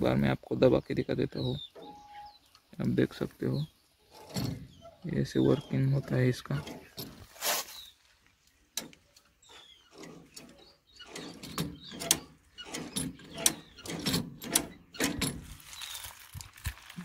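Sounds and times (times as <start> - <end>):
short squeaks: 1.5 - 2.6, 4.0 - 8.0, 8.8 - 16.3
metal linkage clicking and knocking: 4.1 - 7.3, 8.7 - 15.6.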